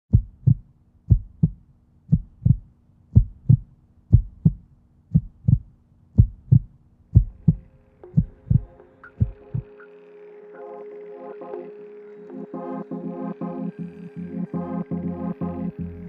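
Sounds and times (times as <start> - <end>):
heartbeat thumps: 0.1 - 9.7
low steady hum: 0.1 - 16.0
soft music chords: 7.3 - 16.0.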